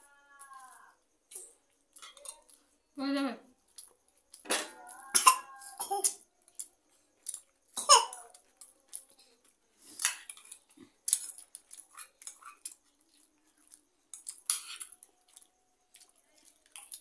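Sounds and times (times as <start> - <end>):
cutlery clicking against bowls: 1.3 - 2.6, 10.0 - 12.8, 14.1 - 17.0.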